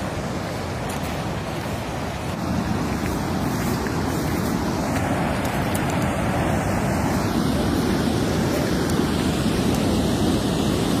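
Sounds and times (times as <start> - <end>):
floodwater rushing across road: 0.0 - 11.0.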